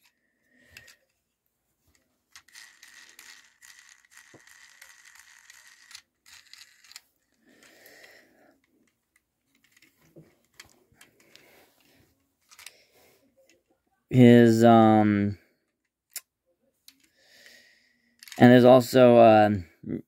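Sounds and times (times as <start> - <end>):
plastic toy parts clicking: 0.0 - 1.2, 1.9 - 11.4, 12.4 - 12.8, 15.6 - 16.3, 18.2 - 18.6.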